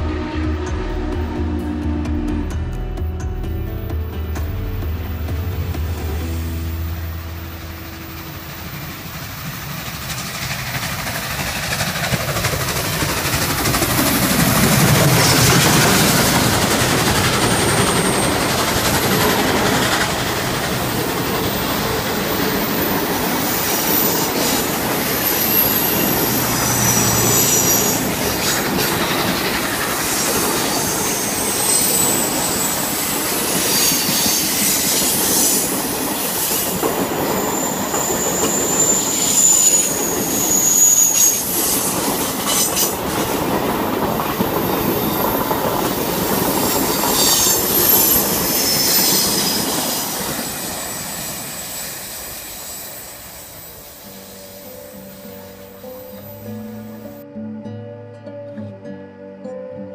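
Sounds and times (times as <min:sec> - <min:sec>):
passenger train rumbling past: 0:00.0 - 0:57.2
wheels clicking over rail joints: 0:08.6 - 0:51.7
high-pitched wheel squeal: 0:21.4 - 0:29.2, 0:30.0 - 0:43.0, 0:46.2 - 0:57.1.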